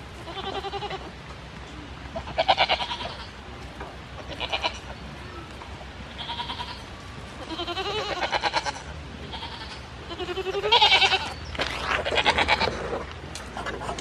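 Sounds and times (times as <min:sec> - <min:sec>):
goats bleating: 0:00.2 - 0:01.1, 0:02.2 - 0:03.4, 0:04.2 - 0:04.9, 0:06.1 - 0:06.8, 0:07.4 - 0:13.0.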